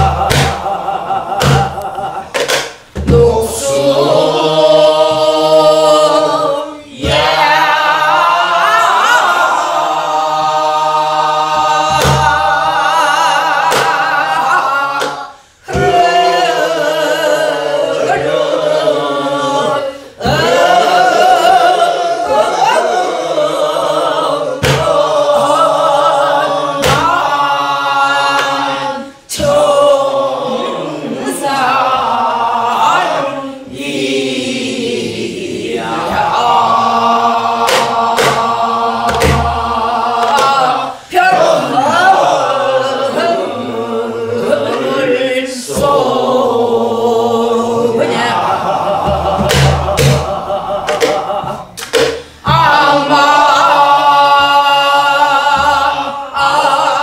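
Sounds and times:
person singing folk song with vibrato: 10.7s - 33.8s, 35.8s - 46.0s.

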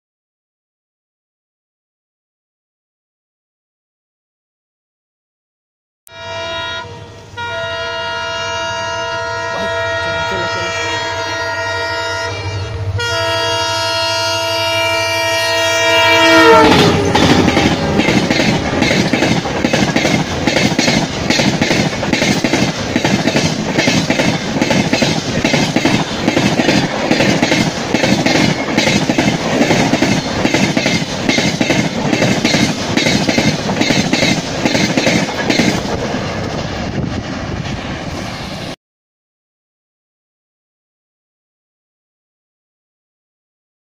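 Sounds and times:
diesel locomotive horn: 6.1s - 18.1s
train wheels clacking on rails: 16.6s - 37.8s.

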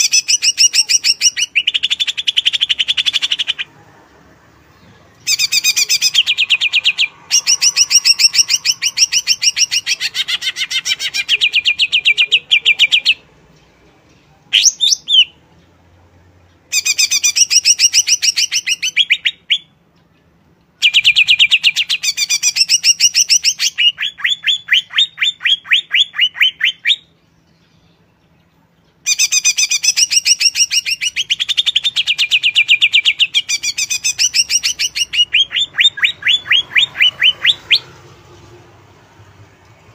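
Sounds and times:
bird singing rapid high notes: 29.0s - 38.0s
slurred bird call: 29.1s - 38.0s.

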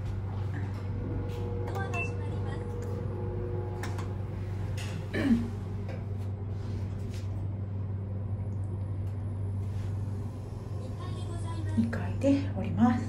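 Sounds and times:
elevator doors closing: 0.0s - 7.1s
elevator drive humming: 0.0s - 13.0s.

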